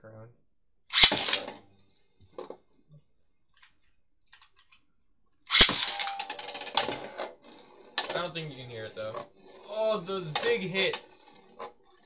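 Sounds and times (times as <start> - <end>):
spinning tops clattering: 0.9 - 1.5, 5.5 - 7.0.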